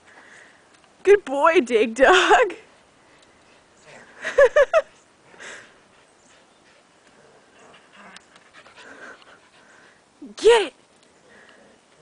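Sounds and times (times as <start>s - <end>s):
dog panting: 5.3s - 10.1s.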